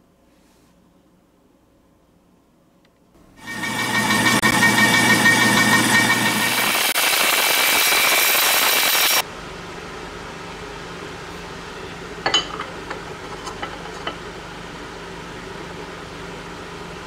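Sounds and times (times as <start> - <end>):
milling machine cutting metal: 3.4 - 9.2.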